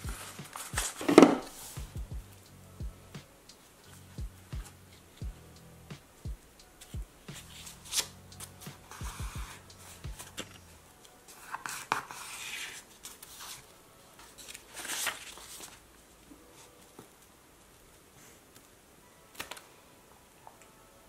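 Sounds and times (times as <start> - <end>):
paper rustling and sliding: 0.0 - 1.8, 6.8 - 10.7, 11.3 - 15.9.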